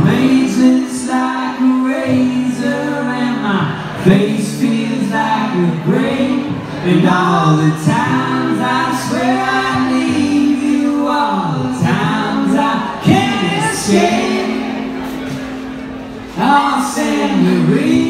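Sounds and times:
acoustic guitar: 0.0 - 18.0
man singing lead: 0.0 - 18.0
woman singing harmony: 13.0 - 14.7.

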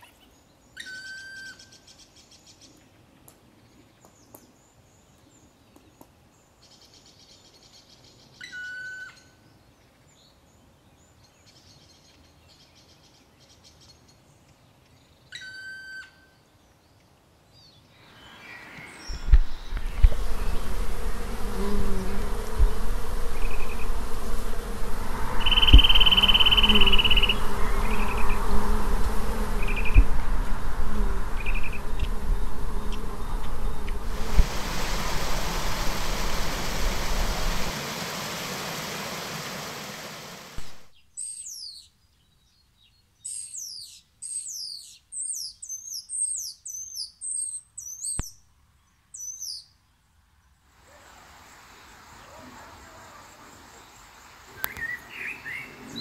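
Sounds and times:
insects buzzing: 18.0 - 40.9
steady rushing hiss: 18.0 - 41.0, 50.6 - 56.0
low rumble: 19.1 - 39.7
small bird chirping: 25.4 - 28.7, 40.9 - 48.4, 49.2 - 49.7.

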